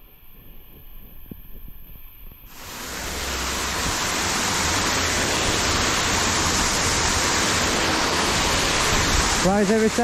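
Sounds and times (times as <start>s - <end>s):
water rushing: 2.5s - 10.0s.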